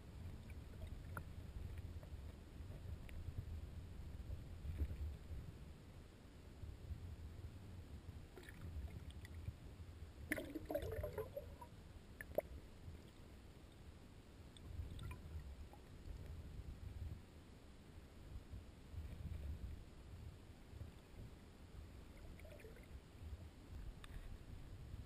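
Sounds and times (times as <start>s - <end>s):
muffled underwater river rumble: 0.0s - 25.0s
bubbling gurgle: 10.2s - 12.5s, 14.7s - 15.6s, 22.2s - 23.0s.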